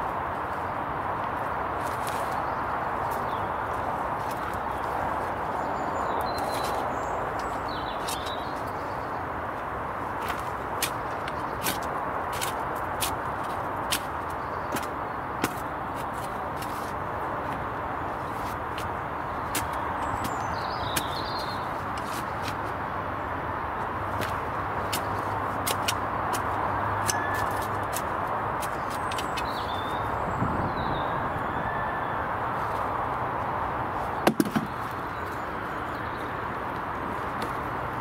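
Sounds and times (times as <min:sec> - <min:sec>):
outdoor background noise: 0:00.0 - 0:38.0
sharp knocks: 0:34.2 - 0:34.8.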